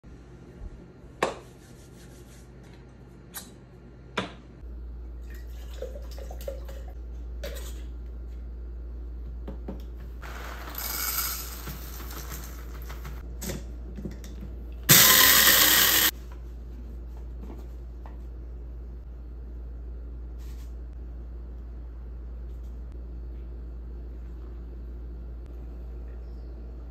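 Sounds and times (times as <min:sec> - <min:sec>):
steady low hum: 0:00.1 - 0:26.9.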